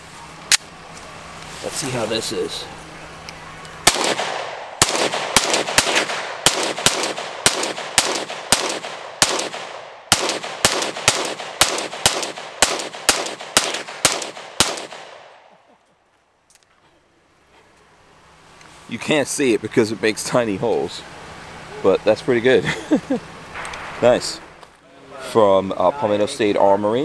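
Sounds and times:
pistol shots with echo: 0:03.8 - 0:15.5.

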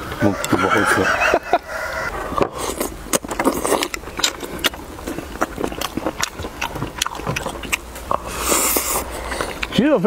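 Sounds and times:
person chewing: 0:01.6 - 0:09.8.

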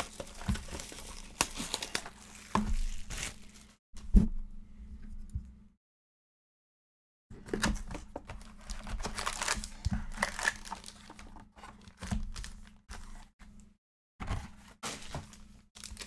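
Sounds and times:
wrappers crinkling and tearing: 0:00.0 - 0:03.8, 0:08.4 - 0:13.2, 0:14.8 - 0:16.0.

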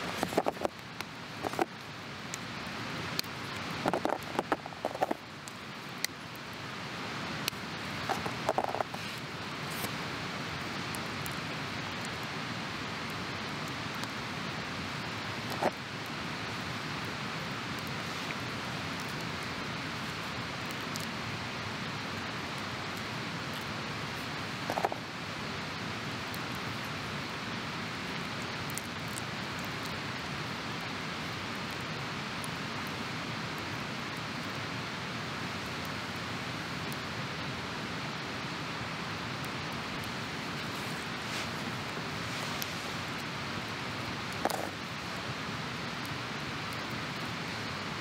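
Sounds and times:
steady rushing noise: 0:00.0 - 0:13.5, 0:14.1 - 0:26.3, 0:37.4 - 0:48.0.

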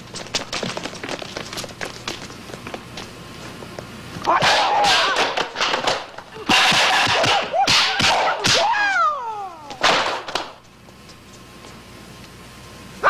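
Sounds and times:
man crying out: 0:08.6 - 0:09.8.

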